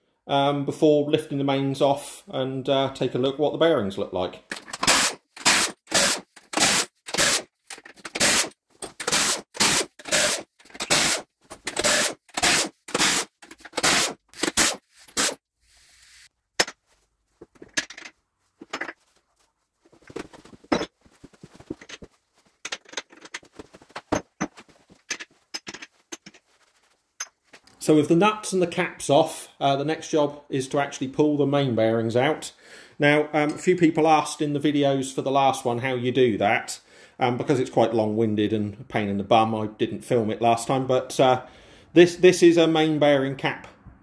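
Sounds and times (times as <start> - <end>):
pneumatic impact wrench hammering: 4.7 - 15.4.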